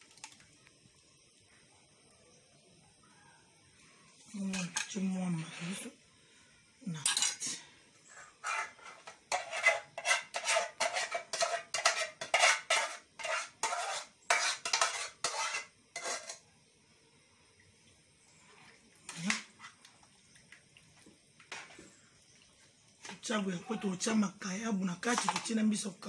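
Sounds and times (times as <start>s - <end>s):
utensil scraping a metal saucepan: 4.3s - 6.0s, 7.0s - 16.4s, 25.0s - 25.6s.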